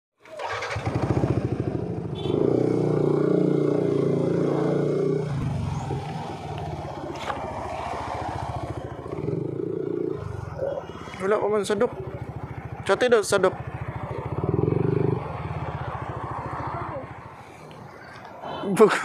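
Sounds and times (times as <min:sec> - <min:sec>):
scooter engine running: 0:00.3 - 0:17.4.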